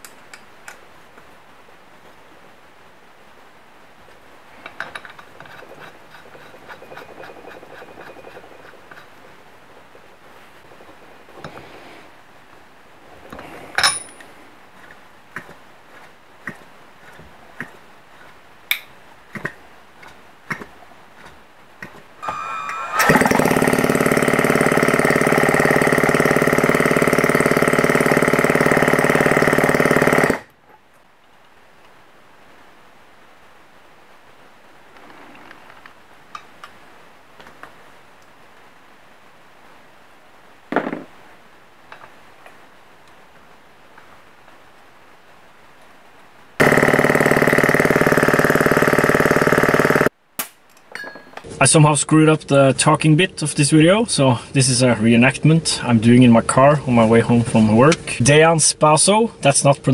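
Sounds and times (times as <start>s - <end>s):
metal clicking and scraping: 4.6s - 10.0s
electric drill cranking engine: 22.2s - 30.5s, 46.6s - 50.1s.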